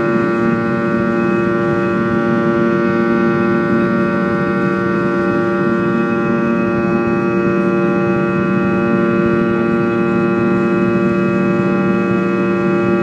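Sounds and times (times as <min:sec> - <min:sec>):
jet engine drone in cabin: 0:00.0 - 0:13.0.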